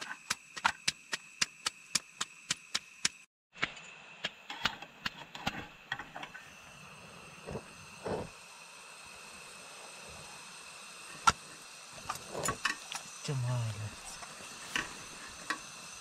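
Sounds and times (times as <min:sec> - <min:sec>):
steady hiss: 0:00.0 - 0:16.0
thin high whine: 0:05.5 - 0:16.0.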